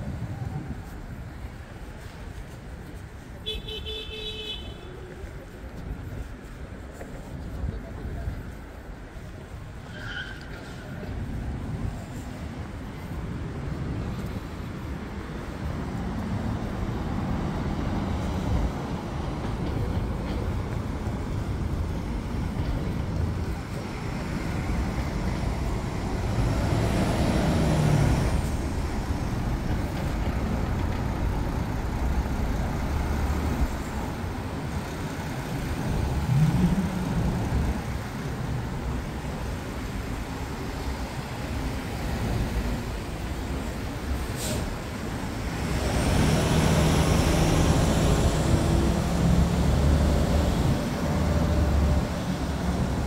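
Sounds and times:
cars going by: 0.0 - 53.0
vehicle engine pulling away: 25.1 - 29.9, 35.2 - 38.3, 45.5 - 53.0.

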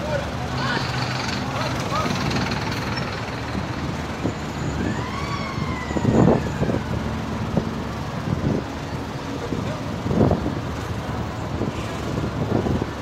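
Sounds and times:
highway traffic: 0.0 - 13.0
siren wail: 4.3 - 7.3.

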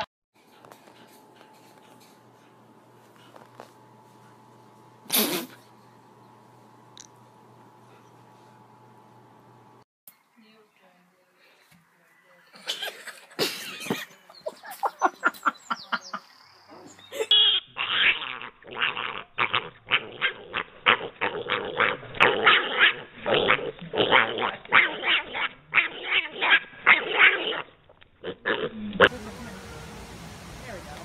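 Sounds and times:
pig squealing: 17.2 - 29.1.

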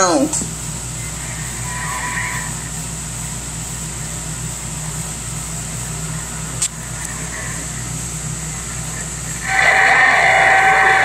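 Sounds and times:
steady low hum: 0.0 - 11.0
radio static hiss: 0.5 - 11.0.

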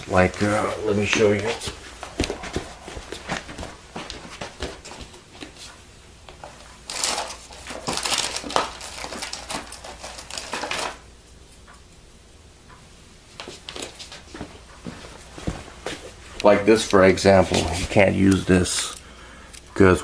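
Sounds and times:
rummaging and rustling: 6.4 - 11.0.

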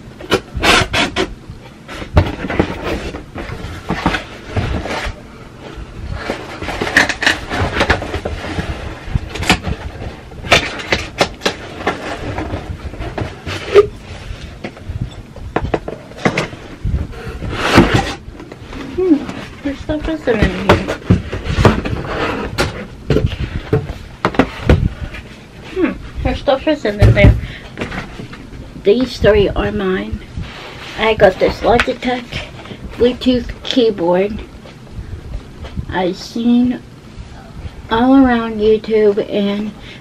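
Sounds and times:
knocks and thumps: 14.6 - 18.6, 19.2 - 25.0, 26.9 - 28.4.

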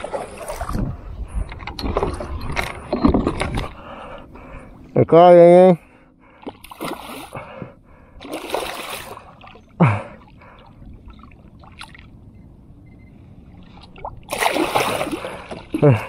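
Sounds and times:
fish splashing water: 8.2 - 9.6, 13.8 - 15.8.

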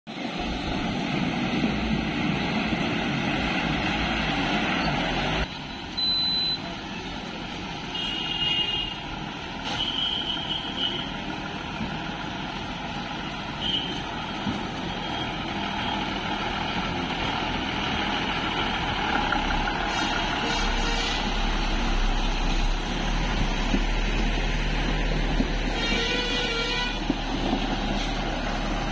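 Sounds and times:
lorry diesel engines running: 0.1 - 28.9
short high-pitched beeps: 5.6 - 6.7.

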